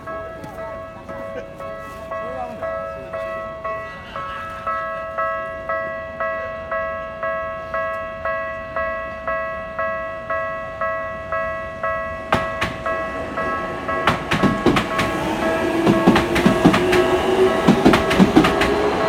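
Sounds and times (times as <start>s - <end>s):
level crossing bell ringing: 0.0s - 19.0s
train wheels clattering: 12.0s - 19.0s.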